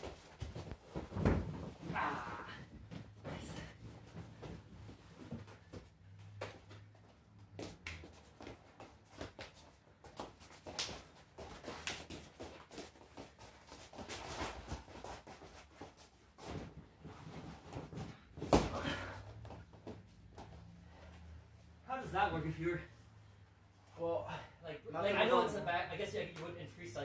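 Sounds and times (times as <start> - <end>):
bodies thudding on mat: 0.0 - 5.8, 16.4 - 20.4
footsteps and scuffs on mat: 0.0 - 21.8.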